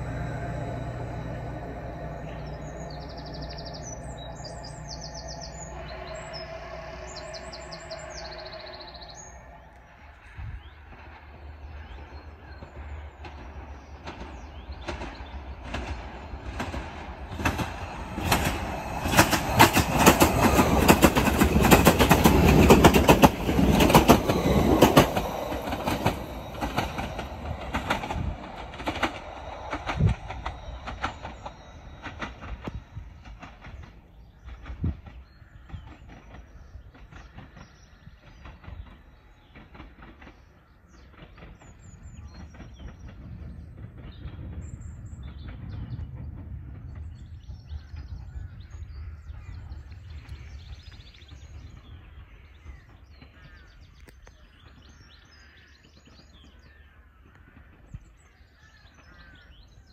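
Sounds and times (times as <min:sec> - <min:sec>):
wheels clacking over rail joints: 0:00.0 - 0:10.0, 0:10.8 - 0:48.8
train passing: 0:00.0 - 0:56.7.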